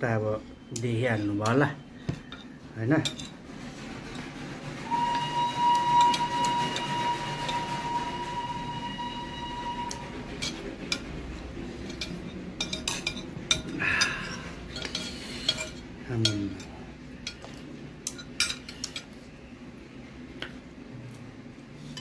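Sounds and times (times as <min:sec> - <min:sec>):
metal spoon scraping ceramic bowl: 0:02.2 - 0:03.4, 0:10.4 - 0:11.1, 0:11.8 - 0:17.4
high whistle-like tone: 0:04.8 - 0:10.2.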